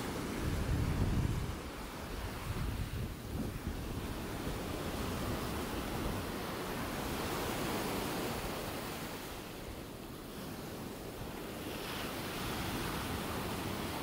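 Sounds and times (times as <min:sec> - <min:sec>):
wind on microphone: 0:00.0 - 0:14.0.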